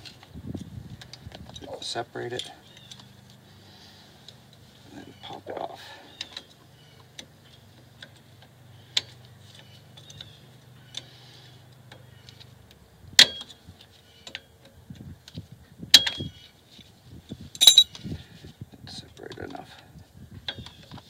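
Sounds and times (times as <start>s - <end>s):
ringing metal clinks: 17.6s - 17.9s.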